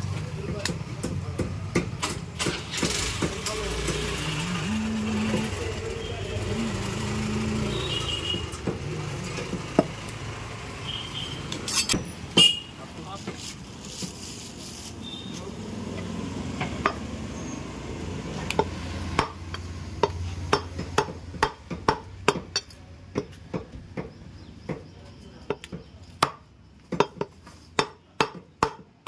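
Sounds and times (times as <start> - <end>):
cleaver chopping meat on block: 18.5 - 24.9, 25.5 - 29.0.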